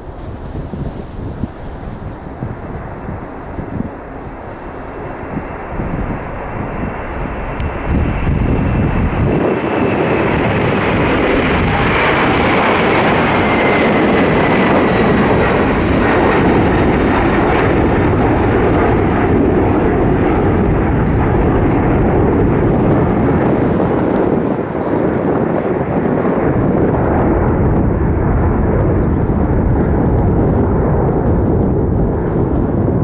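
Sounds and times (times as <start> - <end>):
high engine whine: 0.0 - 24.9
jet engines roaring: 0.0 - 33.0.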